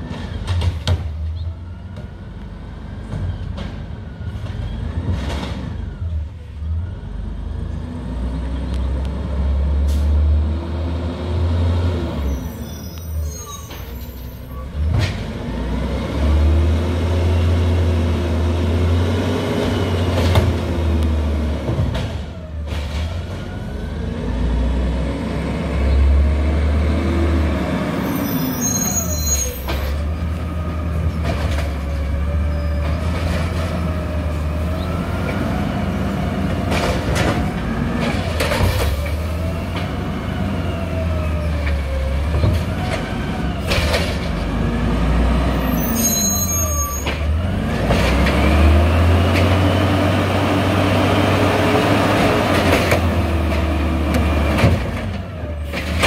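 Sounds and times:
truck engine revving: 14.7s - 28.8s, 47.2s - 56.0s.

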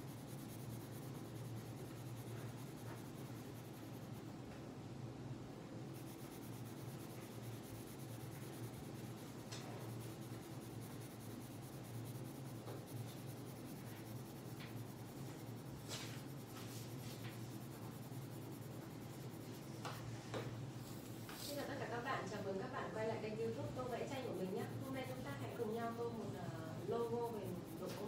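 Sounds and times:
pencil scratching on paper: 0.0s - 4.3s, 5.9s - 28.0s.

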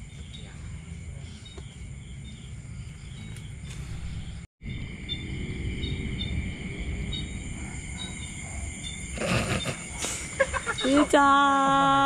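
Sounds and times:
crickets trilling: 0.0s - 12.0s
low rumble: 3.8s - 9.0s.

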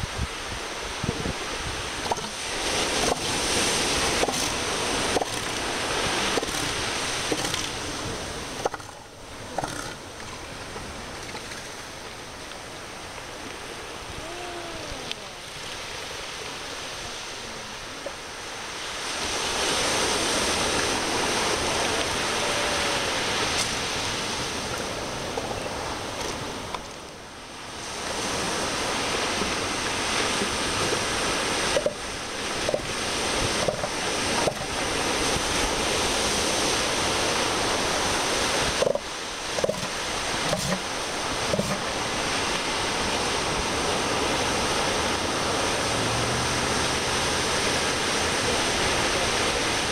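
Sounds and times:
wind on microphone: 0.0s - 26.9s
ocean surf: 0.0s - 49.9s.

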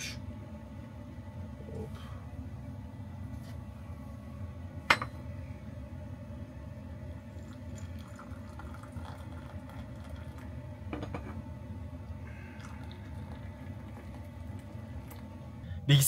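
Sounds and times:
steady low hum: 0.0s - 16.0s
tea pouring into a mug: 7.3s - 11.0s, 12.0s - 15.3s.

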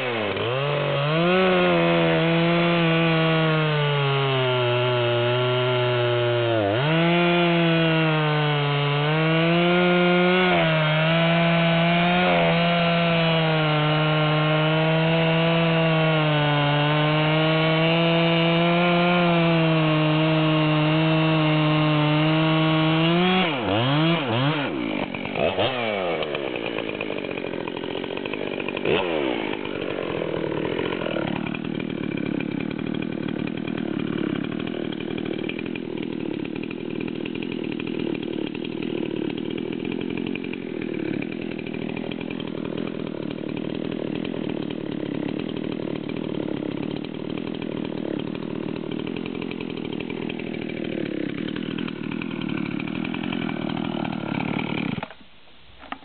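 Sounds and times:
chainsaw engine revving: 0.0s - 55.2s
chainsaw cutting log: 0.0s - 56.0s.

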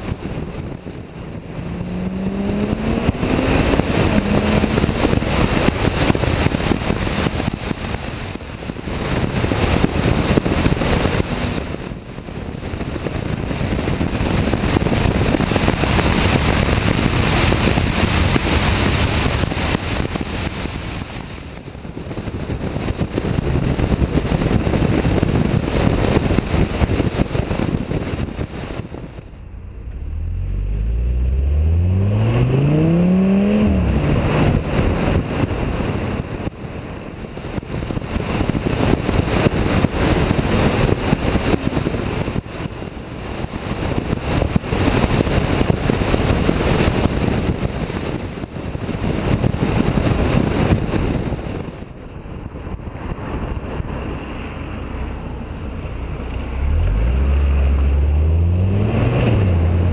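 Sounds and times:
car engine and exhaust accelerating: 0.0s - 59.9s
wind rushing over microphone: 0.0s - 59.9s.

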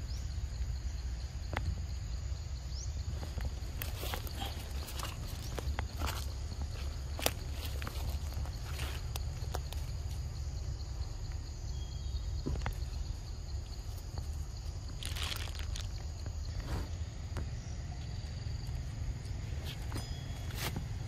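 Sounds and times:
high insect drone: 0.0s - 21.0s
monkeys rustling leaf litter: 14.9s - 16.0s.

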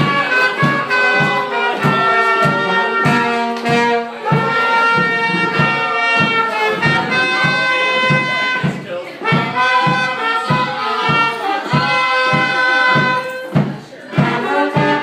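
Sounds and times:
bass drum beat: 0.0s - 15.0s
oompah band playing: 0.0s - 15.0s.

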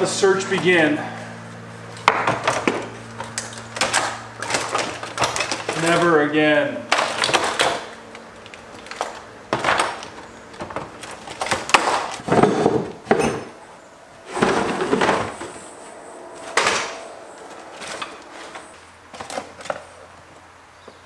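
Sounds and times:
hand tools clattering: 2.0s - 6.1s, 6.9s - 13.6s.

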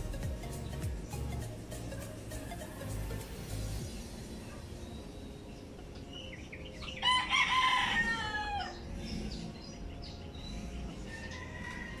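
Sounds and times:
rooster crowing: 7.0s - 8.8s, 11.1s - 12.0s.

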